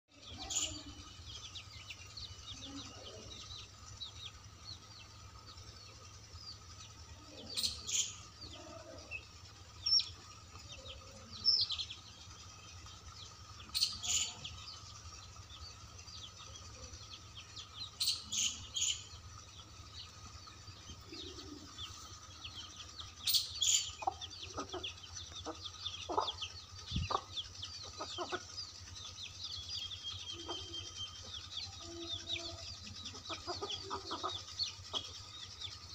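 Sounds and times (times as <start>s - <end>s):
chicks peeping: 0.2s - 35.9s
hen clucking: 23.3s - 29.2s, 30.3s - 35.2s.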